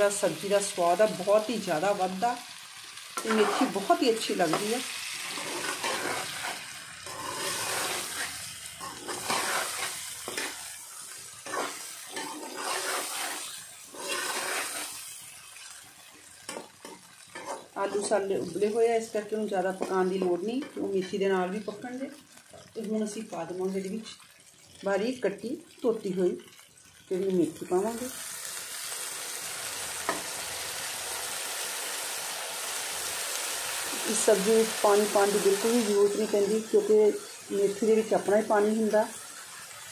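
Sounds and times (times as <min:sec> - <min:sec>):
oil sizzling: 0:00.0 - 0:39.9
metal spatula stirring and scraping: 0:03.0 - 0:18.7.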